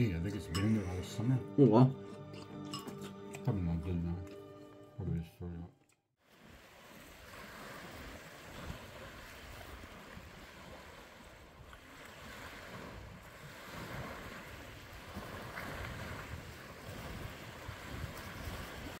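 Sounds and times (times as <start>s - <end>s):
small waves washing onto shore: 6.2s - 19.0s
wind rumbling on microphone: 6.6s - 19.0s.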